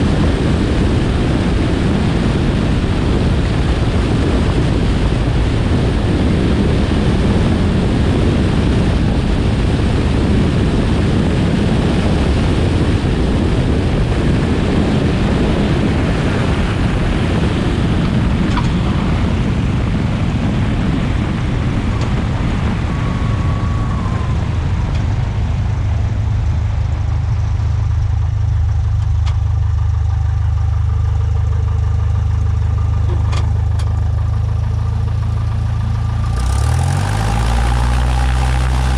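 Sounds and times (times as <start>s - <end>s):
airflow rushing over camera: 0.0s - 29.2s
piston engine idle drone: 0.0s - 38.9s.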